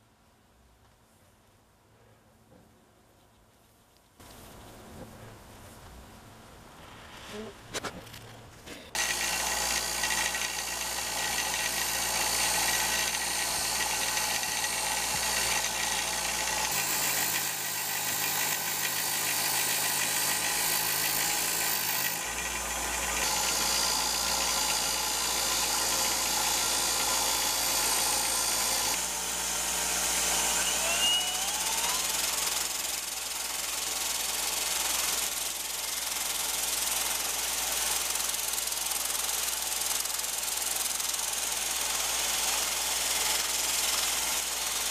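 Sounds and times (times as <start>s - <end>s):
bench grinder grinding steel: 9.0s - 33.0s
belt grinder sanding wood: 9.0s - 44.9s
rising squeal: 30.3s - 32.1s.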